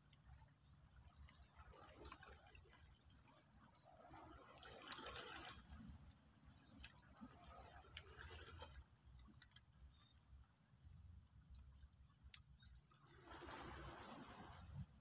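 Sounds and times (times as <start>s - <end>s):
faint ticks: 7.9s - 13.0s.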